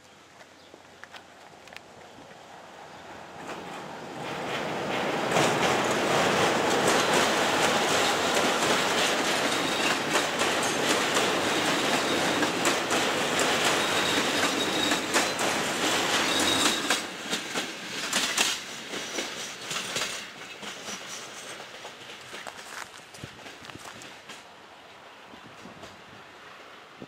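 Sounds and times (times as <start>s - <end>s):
train wheels clattering over rail joints: 3.4s - 24.5s
faint high wheel squeal: 13.7s - 17.1s.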